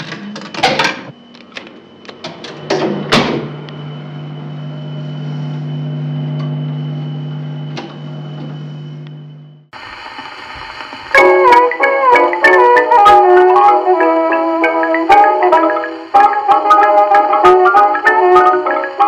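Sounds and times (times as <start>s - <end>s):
jukebox motor humming: 0.0s - 19.0s
hiss: 9.8s - 12.2s.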